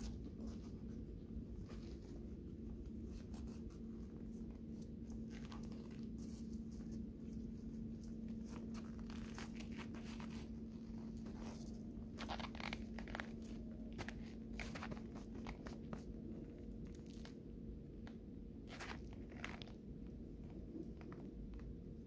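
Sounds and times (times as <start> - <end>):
clothing rustling: 0.0 - 17.4
steady low hum: 0.0 - 22.0.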